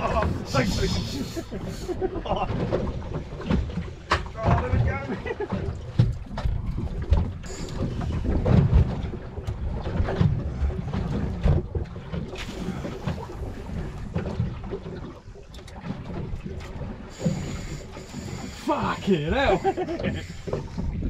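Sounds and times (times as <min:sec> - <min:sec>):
wind buffeting microphone: 0:18.2 - 0:21.0.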